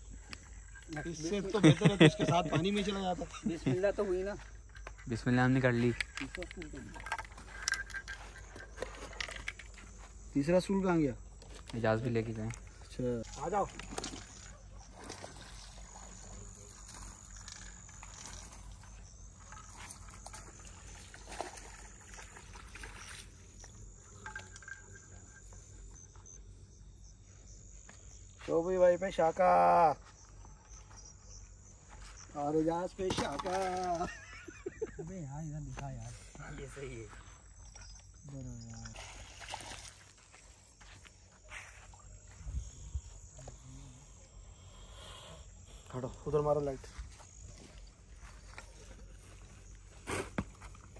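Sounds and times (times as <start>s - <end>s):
crickets chirring: 0.0s - 50.9s
footsteps on dry dirt: 39.6s - 43.4s, 46.7s - 50.9s.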